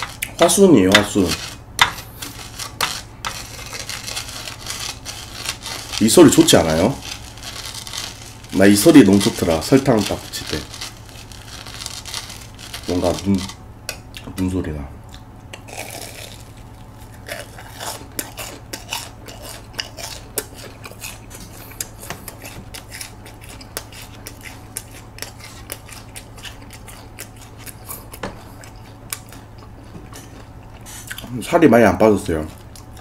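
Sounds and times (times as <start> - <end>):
crunching and chewing fried food: 0.0 - 14.4, 15.0 - 33.0.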